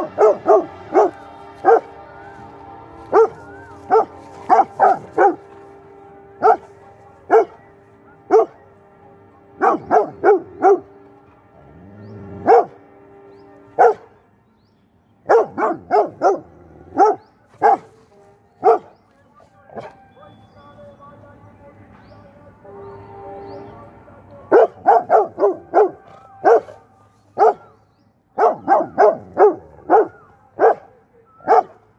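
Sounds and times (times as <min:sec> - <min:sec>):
dog barking: 0:00.0 - 0:02.0, 0:03.1 - 0:05.5, 0:06.4 - 0:06.7, 0:07.3 - 0:07.6, 0:08.3 - 0:08.6, 0:09.6 - 0:10.9, 0:12.4 - 0:12.8, 0:13.8 - 0:14.1, 0:15.3 - 0:18.0, 0:18.6 - 0:18.9, 0:24.5 - 0:26.8, 0:27.4 - 0:27.8, 0:28.4 - 0:31.8.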